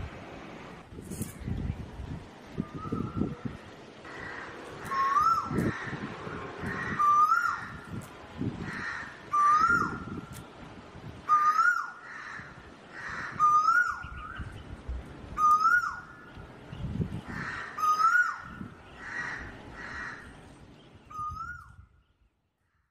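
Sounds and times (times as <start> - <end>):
bird whistled call: 2.6 - 3.3, 13.4 - 14.5, 15.4 - 16.1.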